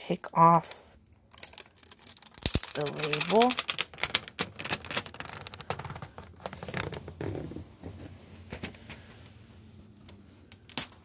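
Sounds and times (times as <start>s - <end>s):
fingers scratching plastic label: 1.5s - 7.6s.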